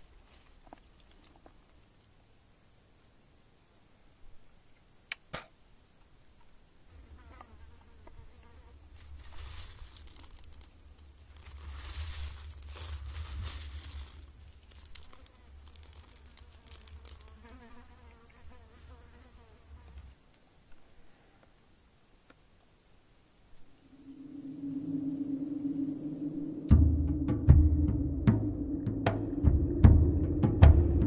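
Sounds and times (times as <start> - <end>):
hand rustling dry palm fruits: 8.7 - 18.0.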